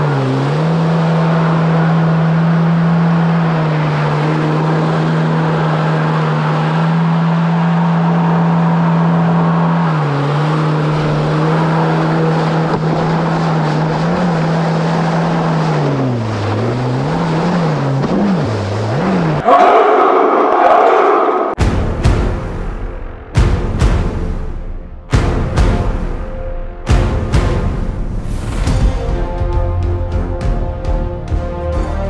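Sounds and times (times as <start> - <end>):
jet ski engine revving: 0.0 - 20.5
water rushing along hull: 0.0 - 20.5.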